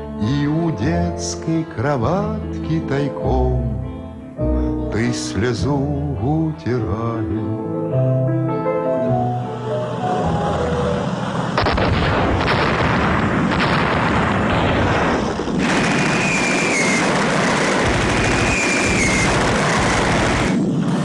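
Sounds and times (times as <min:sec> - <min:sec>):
explosions: 0:11.2 - 0:21.0
gunfire: 0:11.5 - 0:21.0
high descending whistle: 0:15.9 - 0:17.1, 0:18.2 - 0:19.4.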